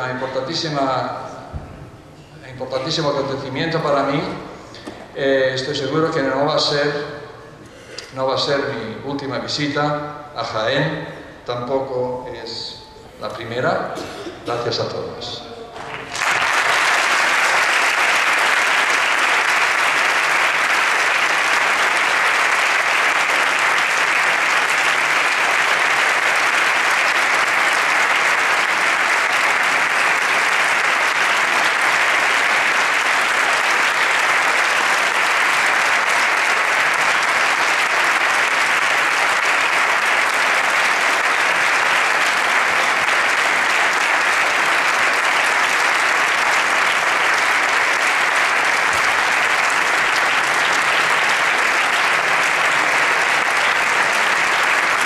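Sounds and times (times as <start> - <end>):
audience applauding: 15.8 - 55.0.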